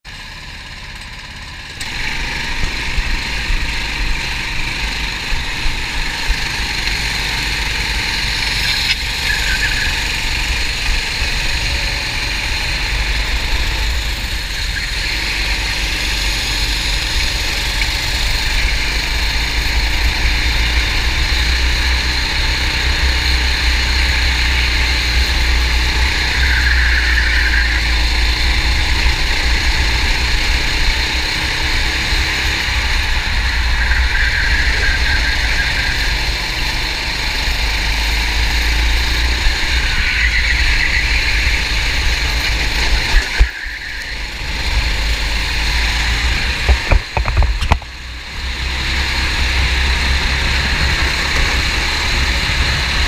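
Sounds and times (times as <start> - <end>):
kart engine running hard: 0.1 - 53.0
wind rumble on microphone: 39.2 - 53.0.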